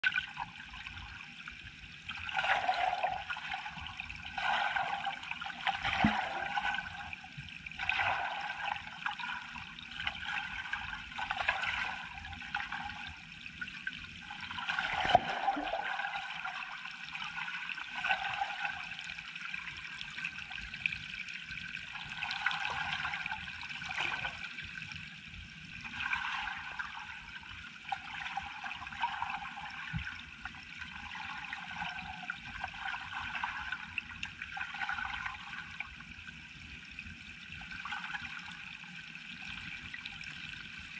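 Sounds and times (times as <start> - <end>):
underwater water noise: 0.0 - 40.9
sharp underwater knocks: 6.0 - 6.3, 15.0 - 15.5.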